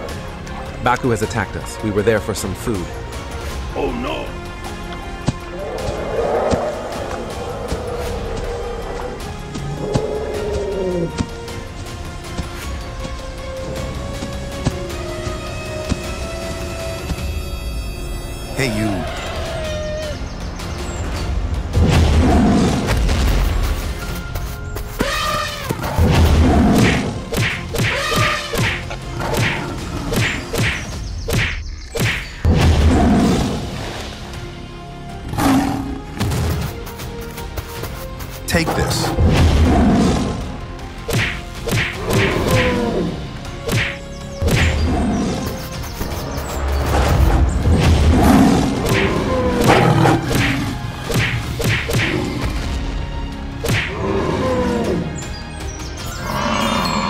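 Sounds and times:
background music: 0.0 - 57.0
cartoon thuds and whacks: 48.8 - 52.1.

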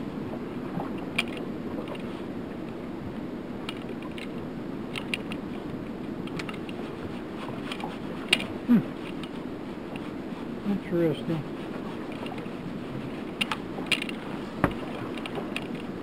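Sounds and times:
water around boat: 0.0 - 16.0
wind: 0.0 - 16.0
light clicks and knocks: 1.1 - 2.1, 3.6 - 5.6, 6.2 - 6.8, 13.3 - 16.0.

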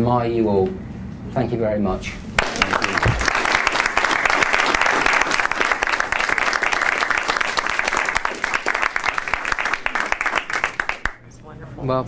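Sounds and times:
audience applauding: 2.4 - 11.2.

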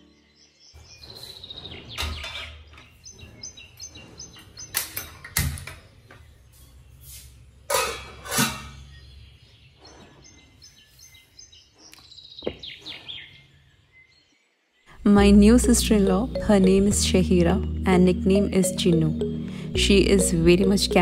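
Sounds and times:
birds chirping: 0.0 - 7.1, 8.8 - 21.0
metal pots and lids clanking: 7.7 - 8.8.

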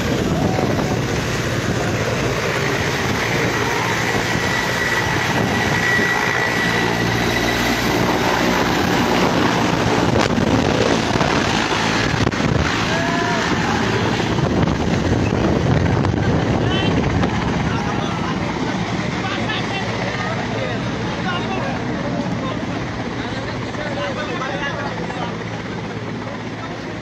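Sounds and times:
helicopter rotor and turbines: 0.0 - 27.0
thin high turbine whine: 0.0 - 27.0.

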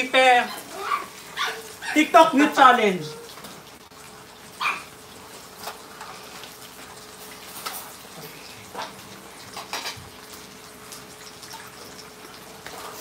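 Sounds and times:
food sizzling in a pan: 0.0 - 13.0
utensils clinking on plates: 7.2 - 10.1.

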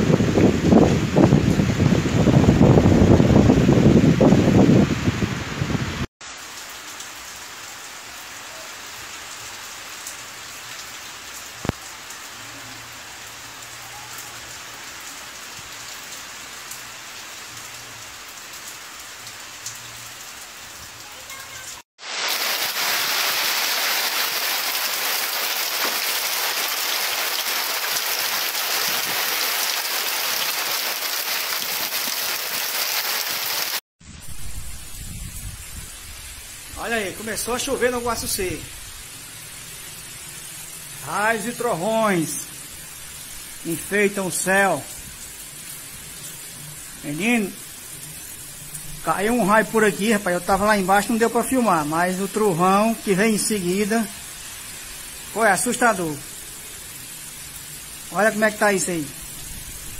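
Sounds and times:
heavy rain falling: 0.0 - 59.9.

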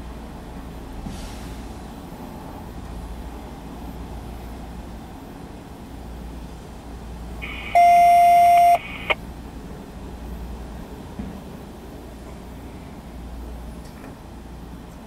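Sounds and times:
electronic beep: 7.4 - 9.2.

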